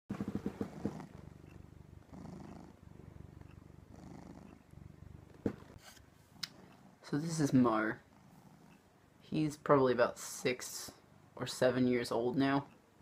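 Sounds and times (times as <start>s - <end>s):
cat purring: 0.1s - 9.2s.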